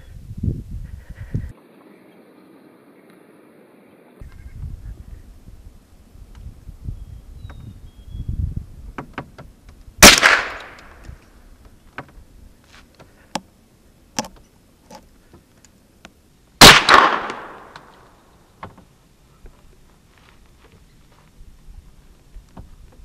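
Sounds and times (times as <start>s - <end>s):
gunshots with echo: 10.0s - 11.0s, 16.6s - 18.0s.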